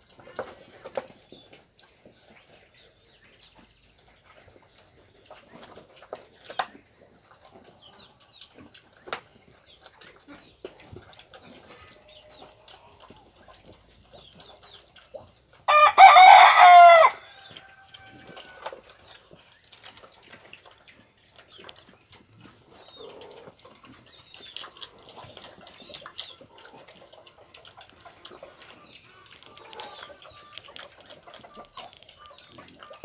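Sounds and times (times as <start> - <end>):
piglets eating from feed bowl: 0.0 - 33.0
rooster crowing: 15.7 - 18.8.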